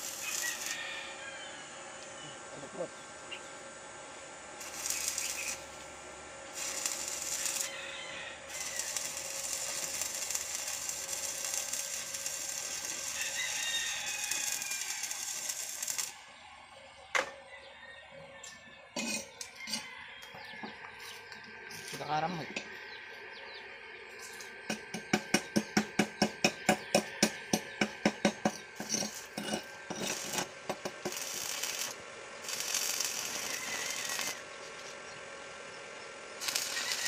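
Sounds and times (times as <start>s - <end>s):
welding arc crackling: 0.0s - 0.8s, 4.6s - 16.3s, 24.1s - 35.0s, 36.4s - 37.0s.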